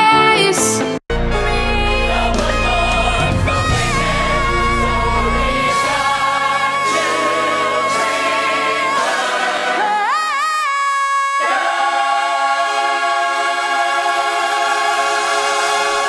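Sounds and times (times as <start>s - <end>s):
pop backing music: 0.0s - 10.1s.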